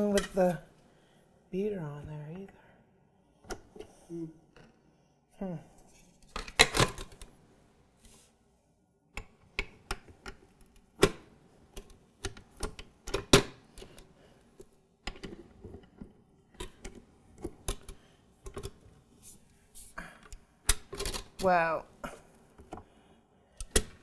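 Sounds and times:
mixer parts clicking and knocking: 0:09.1 - 0:14.1, 0:15.0 - 0:18.8.

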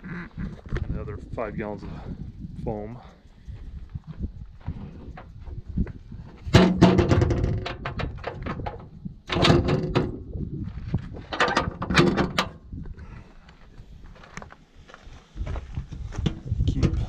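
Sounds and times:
metal panel clanking and rattling: 0:06.4 - 0:10.3, 0:11.1 - 0:12.7.

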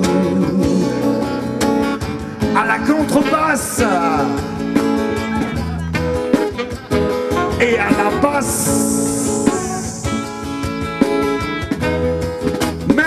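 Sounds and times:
double bass: 0:00.0 - 0:13.0
plucked guitar: 0:00.0 - 0:13.0
alto saxophone: 0:05.0 - 0:12.7.

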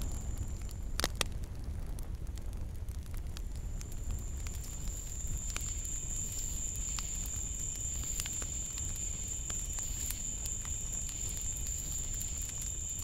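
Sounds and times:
night insects droning: 0:03.6 - 0:13.0.

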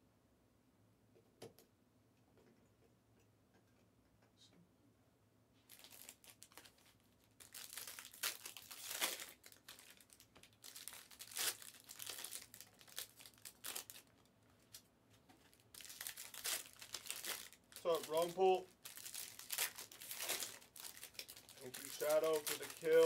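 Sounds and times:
foil wrappers crinkling and tearing: 0:05.7 - 0:23.0.

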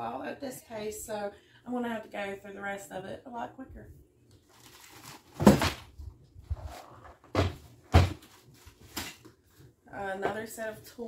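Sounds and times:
knocks in wooden cabinet: 0:07.3 - 0:08.2.

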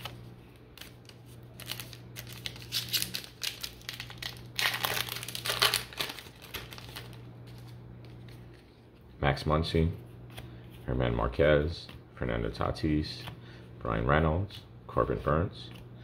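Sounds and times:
wrapper tearing and crinkling: 0:00.8 - 0:07.7.

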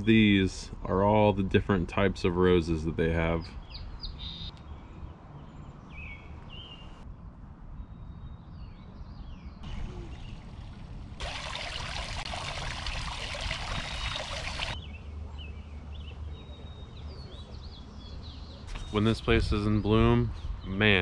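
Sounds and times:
small birds chirping: 0:03.2 - 0:10.7, 0:11.3 - 0:21.0
fountain water splashing: 0:09.6 - 0:14.8.

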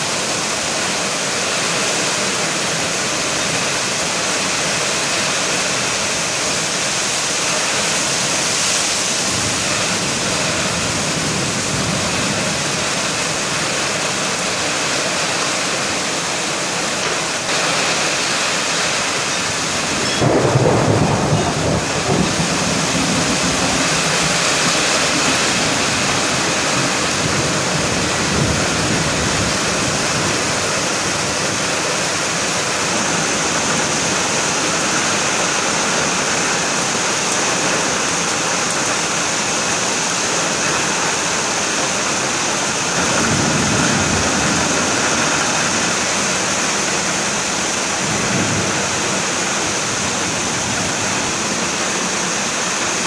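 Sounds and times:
heavy rain pouring: 0:00.0 - 0:53.0
low rumble of thunder: 0:20.0 - 0:30.7.

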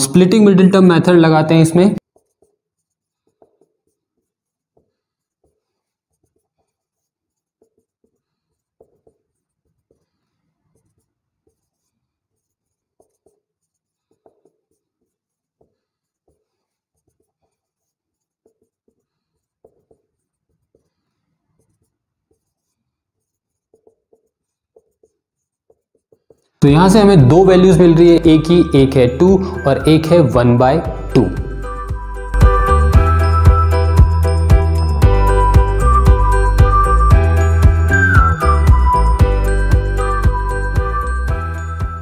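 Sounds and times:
marker writing on whiteboard: 0:02.0 - 0:27.2.

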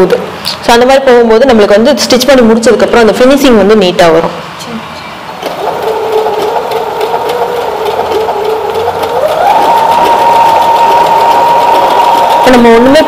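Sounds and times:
sewing machine motor whine: 0:05.3 - 0:13.0.

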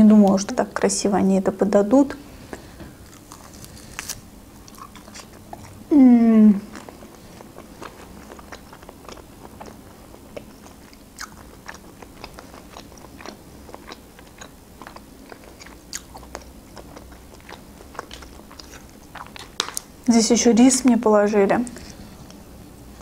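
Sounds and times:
chewing meat off a bone: 0:02.5 - 0:05.8, 0:06.6 - 0:19.9.

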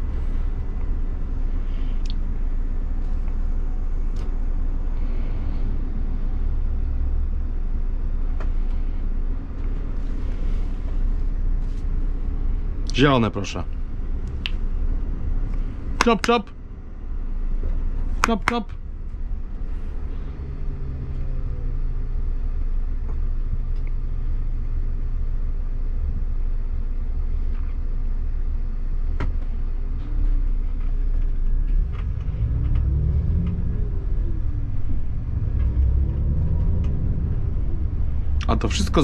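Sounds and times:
diesel engine: 0:00.0 - 0:39.0
road rumble: 0:00.0 - 0:39.0.

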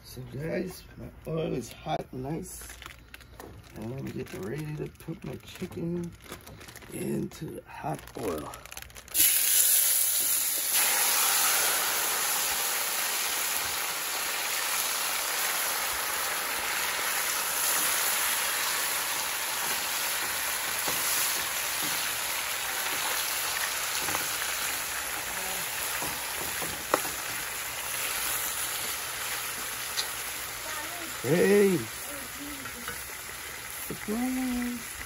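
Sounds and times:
chicken sizzling in oil: 0:09.1 - 0:35.0.

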